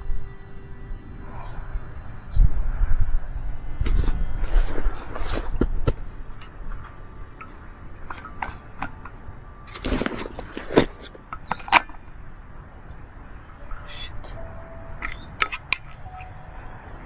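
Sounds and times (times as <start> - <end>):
high bird chirps: 8.1 - 8.8, 11.5 - 12.4, 13.7 - 15.4.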